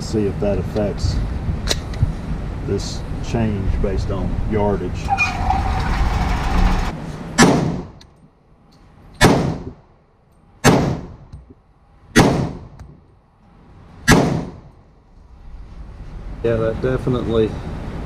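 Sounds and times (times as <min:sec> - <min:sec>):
pistol gunshots with echo: 0:07.4 - 0:08.0, 0:09.2 - 0:09.8, 0:10.6 - 0:11.2, 0:12.1 - 0:12.8, 0:14.0 - 0:14.7.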